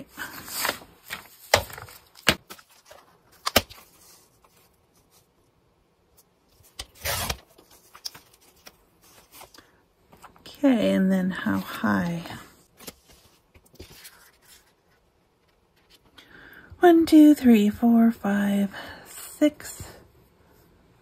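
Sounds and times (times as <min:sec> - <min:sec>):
paper handled: 0:00.0 - 0:05.3, 0:06.5 - 0:10.5, 0:11.4 - 0:16.1.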